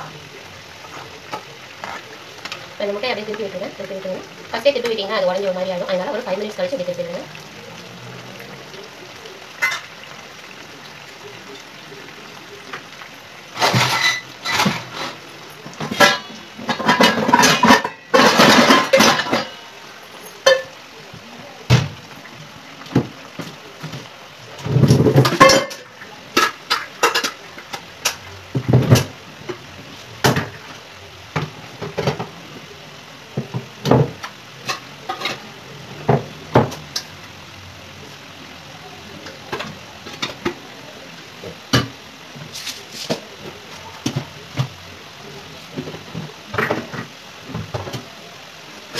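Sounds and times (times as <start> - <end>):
low steady background noise: 0.0 - 48.9
metal pots and utensils clattering: 9.6 - 10.1, 13.5 - 20.8, 22.9 - 30.7, 31.4 - 32.3, 33.4 - 37.2, 39.2 - 40.6, 45.7 - 48.1.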